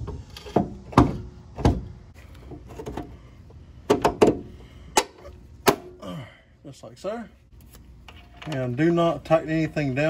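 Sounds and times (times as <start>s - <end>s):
metal parts knocking and clunking: 0.0s - 3.2s.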